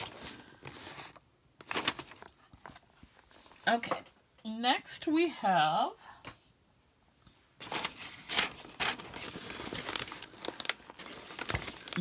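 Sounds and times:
tissue paper rustling: 0.0 - 3.8, 7.6 - 12.0.

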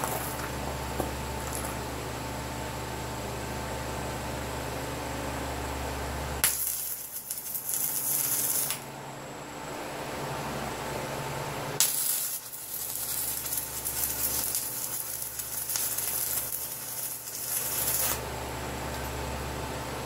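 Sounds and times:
arc welding hiss: 6.4 - 8.8, 11.8 - 18.2.

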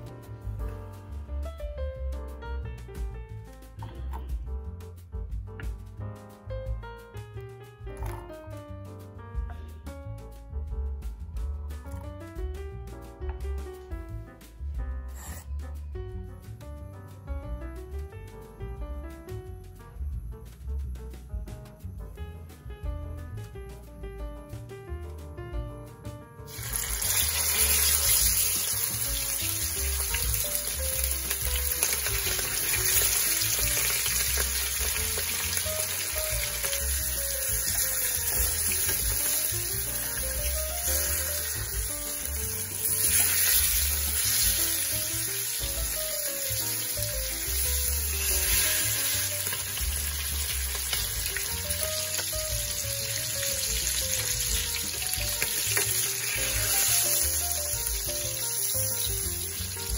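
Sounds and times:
background music: 0.0 - 59.9
fish sizzling in hot oil: 26.5 - 59.9.

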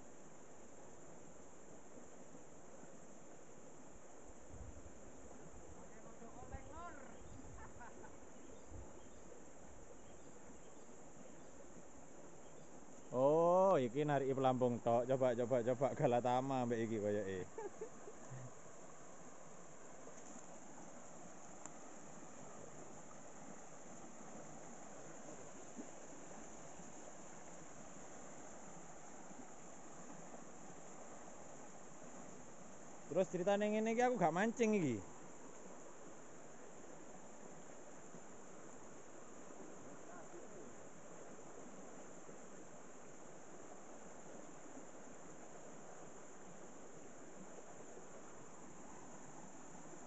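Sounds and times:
crickets droning: 0.0 - 50.0
fast-flowing stream rushing: 18.0 - 50.0.

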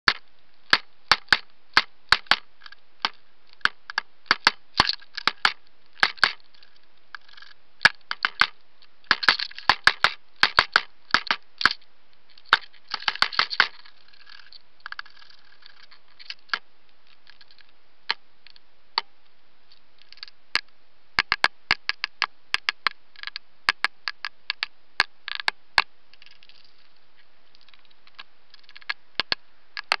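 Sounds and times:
woodpecker pecking on plastic: 0.1 - 16.6.

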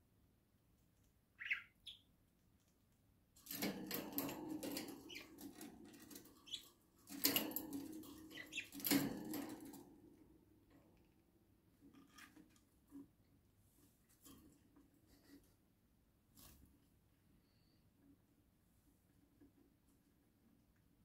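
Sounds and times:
budgerigar chirp: 1.4 - 2.1
wings flapping against cage wires: 3.4 - 10.1.

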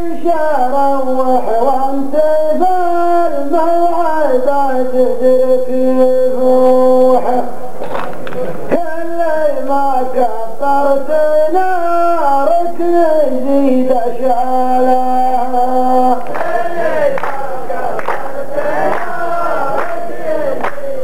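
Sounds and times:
men chanting together: 14.2 - 21.0.

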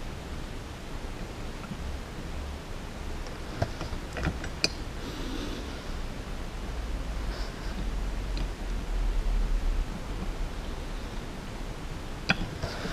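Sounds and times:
steady background hiss: 0.0 - 12.9
small parts clicking and tapping: 12.2 - 12.9.

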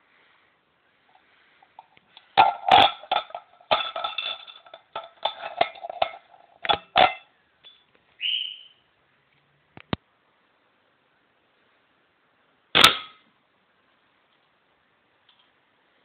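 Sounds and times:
tin can clanking: 1.8 - 7.3.

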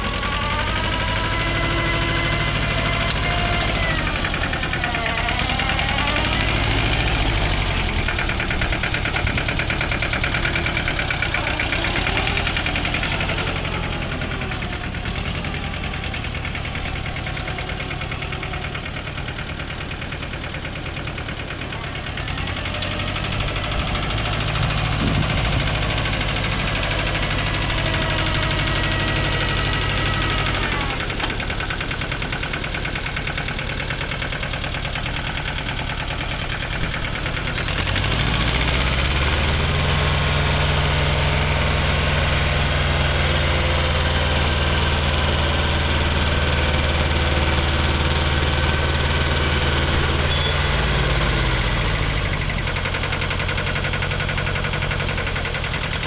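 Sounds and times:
rotary tiller in soil: 0.0 - 56.0
tractor engine running: 0.0 - 56.0.

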